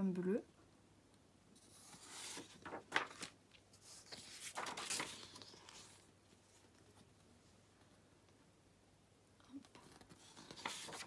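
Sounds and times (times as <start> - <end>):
tracing paper rustling and crackling: 1.6 - 7.2, 9.7 - 11.0.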